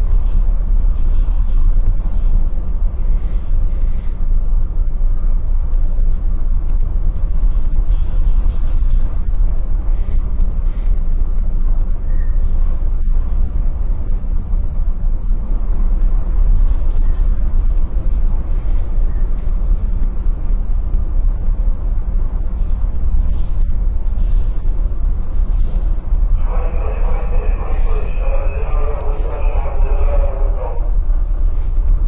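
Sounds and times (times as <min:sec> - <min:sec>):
strong wind buffeting microphone: 0:00.0 - 0:32.0.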